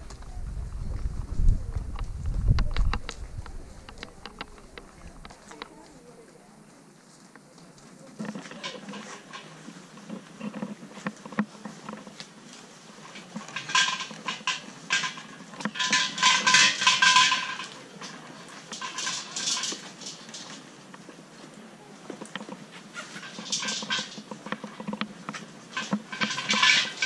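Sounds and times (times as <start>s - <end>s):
metallic jingling and rattling: 13.0s - 20.8s, 22.2s - 27.0s.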